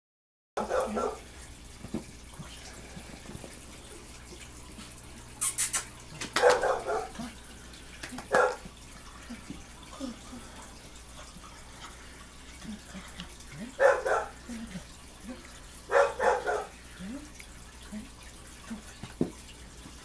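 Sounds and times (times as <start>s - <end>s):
short voice-like calls: 5.4s - 5.9s
hands clapping: 5.8s - 6.7s, 8.0s - 8.7s.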